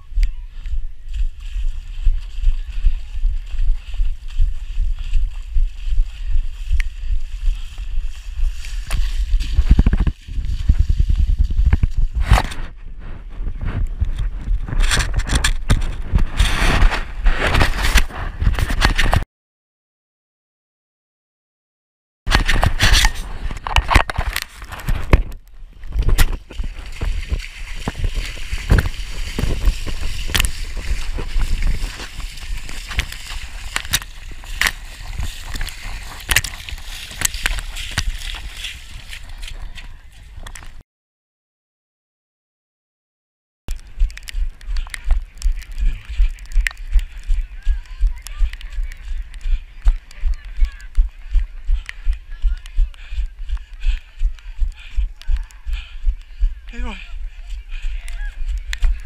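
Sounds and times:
steps sloshing through water: 0.5s - 12.0s, 24.3s - 40.8s
knocks and rubbing against camera: 8.9s - 19.2s, 22.3s - 38.1s
water splashing and sloshing: 25.9s - 39.6s.

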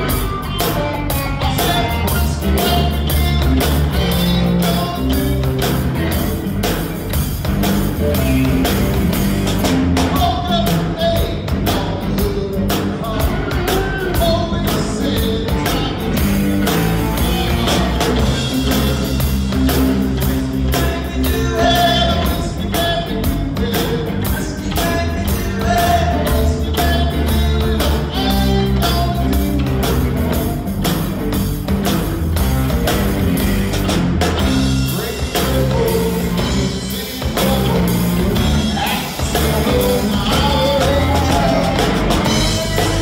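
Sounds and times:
drum and cymbal hits: 0.0s - 43.0s
rock band playing live: 0.0s - 43.0s.

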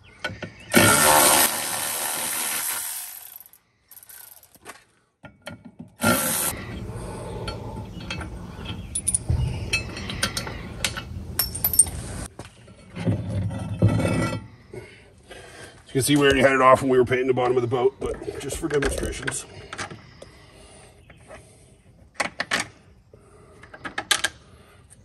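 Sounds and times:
metallic clinks and knocks: 7.4s - 12.1s.

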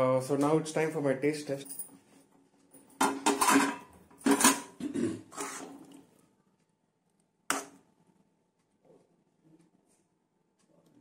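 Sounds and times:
metal spoon scraping a pan: 3.0s - 6.0s.

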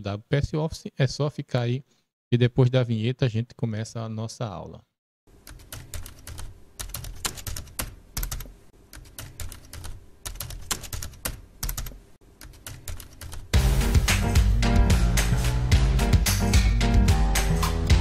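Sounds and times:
fast typing on keyboard: 5.4s - 13.5s.

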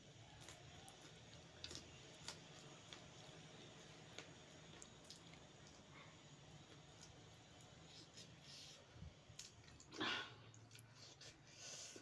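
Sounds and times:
soft crunches of chewing: 0.0s - 12.0s.

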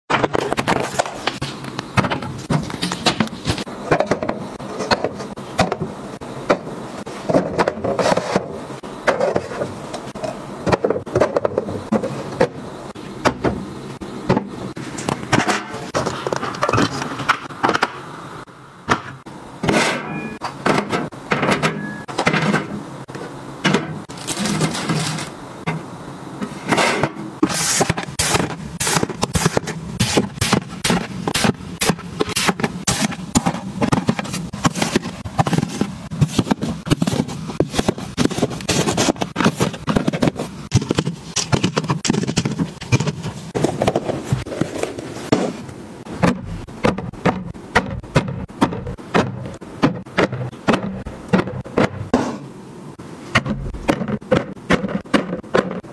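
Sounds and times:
packaging rustling and scraping: 7.0s - 12.4s, 24.1s - 25.4s, 26.5s - 47.4s.

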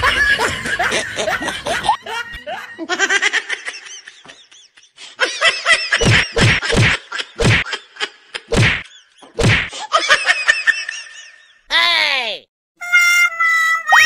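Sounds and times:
slapstick whack effects: 6.0s - 7.7s, 8.5s - 9.7s.

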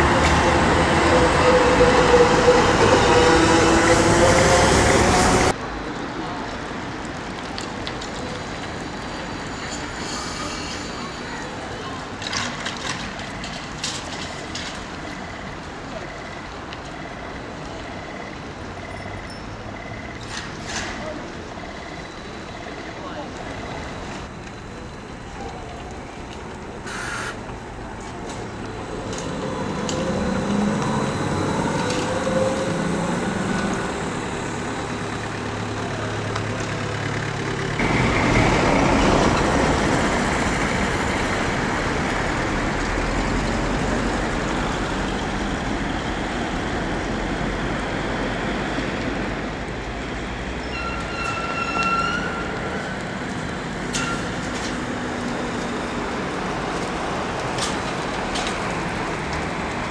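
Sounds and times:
road vehicles passing: 0.0s - 59.9s
brief high-pitched squeal: 50.7s - 52.5s.

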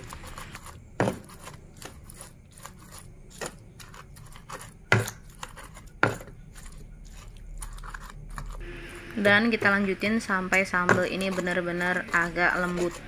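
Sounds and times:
pestle grinding in stone mortar: 0.0s - 13.0s
pestle knocking on stone: 10.4s - 13.0s.

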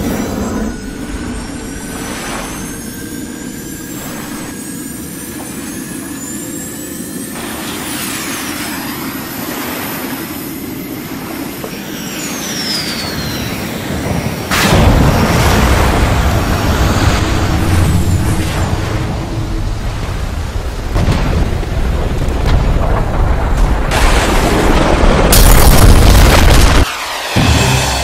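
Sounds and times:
high whistling tones: 0.0s - 9.4s, 10.4s - 14.5s
steady low rumble: 14.0s - 28.0s.

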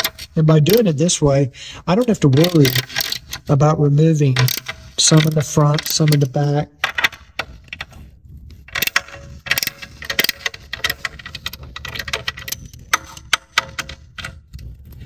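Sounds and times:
hand ratchet clicking: 1.9s - 3.6s, 4.4s - 8.0s, 8.7s - 14.7s.

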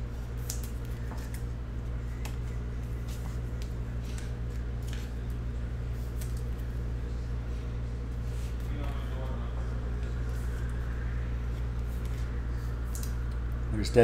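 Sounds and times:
steady low hum: 0.0s - 14.0s
cards flicking and swishing: 0.4s - 1.5s, 6.0s - 6.7s.

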